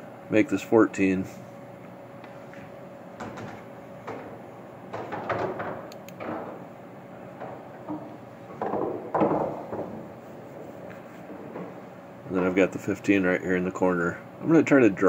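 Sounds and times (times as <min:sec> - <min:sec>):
pool balls knocking and clattering: 0:03.2 - 0:13.4.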